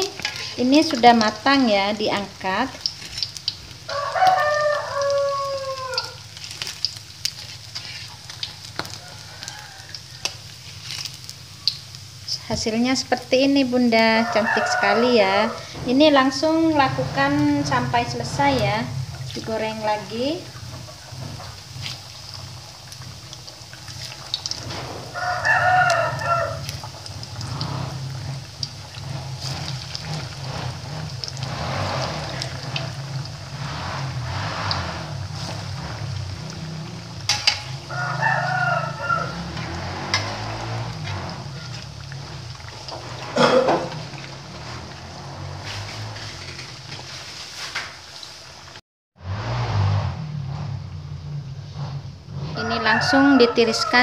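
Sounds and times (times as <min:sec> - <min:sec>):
food deep-frying in hot oil: 0:00.0 - 0:54.0
rooster crowing: 0:03.8 - 0:06.3, 0:08.4 - 0:10.6, 0:14.0 - 0:15.8, 0:25.0 - 0:27.0, 0:37.0 - 0:44.2, 0:52.5 - 0:54.0.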